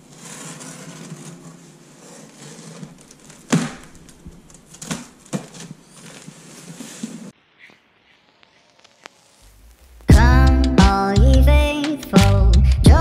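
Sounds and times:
tape and cardboard rustling: 0.0s - 9.0s.

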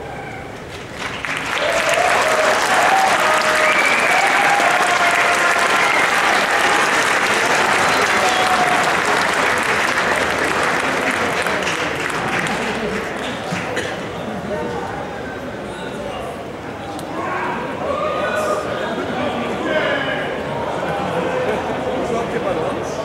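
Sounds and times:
audience applauding and cheering: 0.7s - 13.8s
crowd shouts and whoops: 1.5s - 7.0s, 7.6s - 9.1s.

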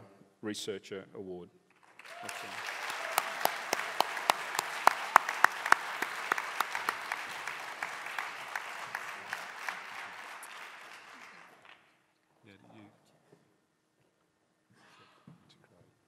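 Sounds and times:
audience applauding: 1.8s - 12.0s
person clapping close up: 2.0s - 11.8s.

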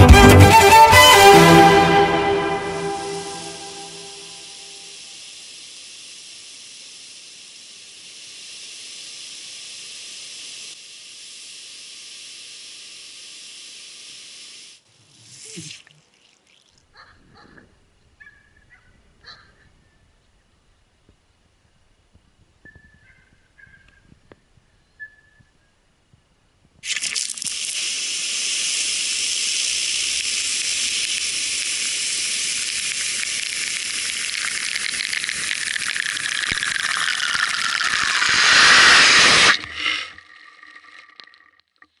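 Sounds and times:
lawn sprinkler spraying water: 2.6s - 16.8s, 26.8s - 40.1s.

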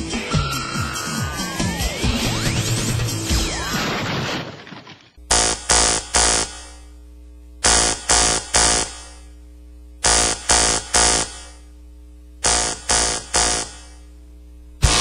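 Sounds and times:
rock band playing noisy stabs: 0.0s - 3.7s, 12.4s - 13.8s, 14.8s - 15.0s
low electronic hum: 5.2s - 15.0s.

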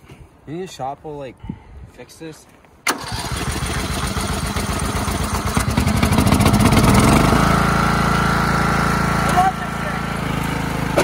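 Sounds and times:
riding lawn mower engine running: 2.9s - 11.0s.

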